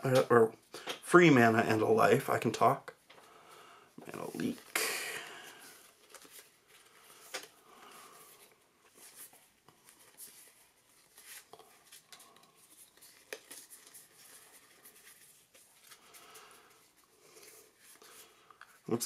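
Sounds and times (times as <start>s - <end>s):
playing cards rustling: 4.0s - 19.0s.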